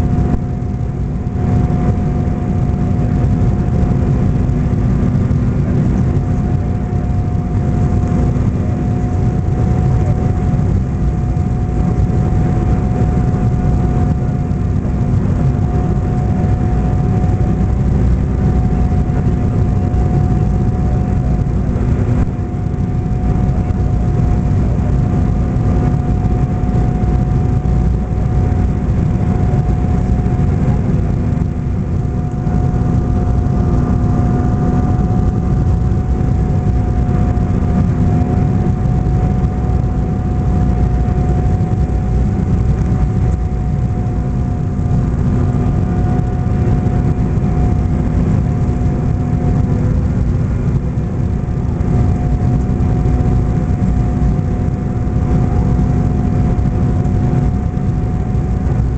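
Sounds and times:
jet cabin engine rumble: 0.0s - 58.9s.

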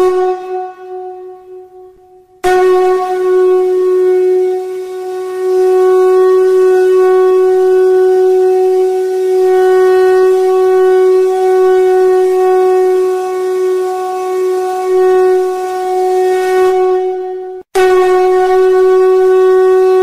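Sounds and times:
steady drone note: 0.0s - 9.6s.

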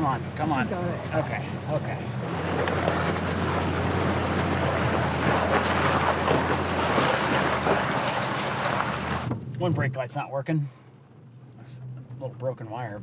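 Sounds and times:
rushing water: 0.0s - 9.5s
truck engine under load: 0.0s - 9.5s
knocks from rocks: 2.3s - 9.4s.

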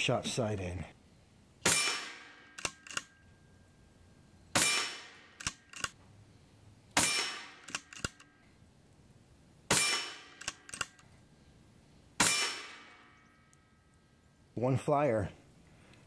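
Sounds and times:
air rifle shots: 1.6s - 3.1s, 4.5s - 6.0s, 7.0s - 8.3s, 9.7s - 11.0s, 12.2s - 13.2s
quick clicks: 2.6s - 3.2s, 5.4s - 6.0s, 7.6s - 8.3s, 10.4s - 11.1s.

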